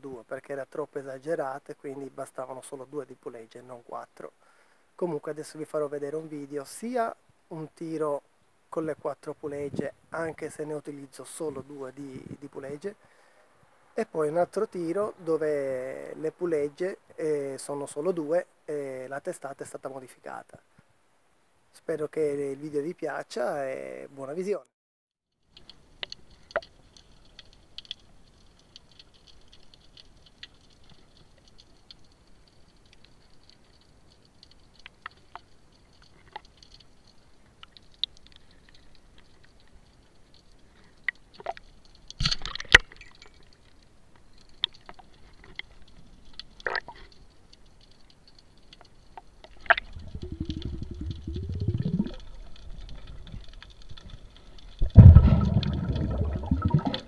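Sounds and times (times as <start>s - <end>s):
faint high hiss: 0.0s - 24.7s, 25.4s - 57.0s
underwater clicks and snaps: 25.5s - 57.0s
churning water: 49.7s - 52.2s, 54.9s - 57.0s
low rumble: 50.0s - 52.2s.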